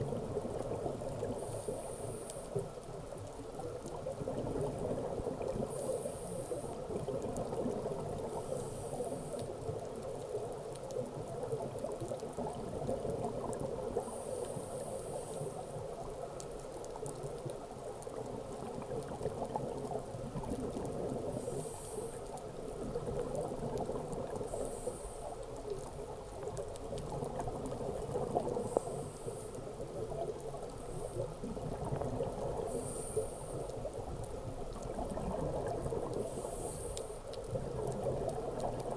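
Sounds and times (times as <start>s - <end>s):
regulator bubbling underwater: 25.8s - 38.9s.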